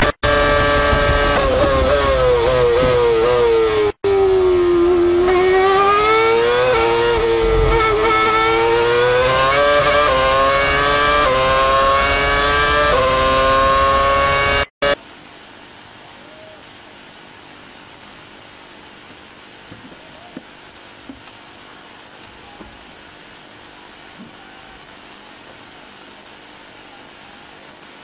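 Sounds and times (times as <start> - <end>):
racing car engine at full throttle: 0.0 - 15.0.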